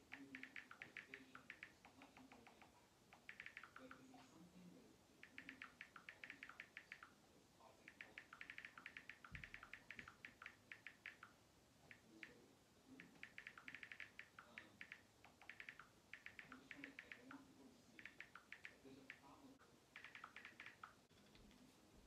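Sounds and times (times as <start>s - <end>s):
phone keyboard taps: 7.9s - 11.3s, 13.0s - 17.4s, 20.0s - 21.0s.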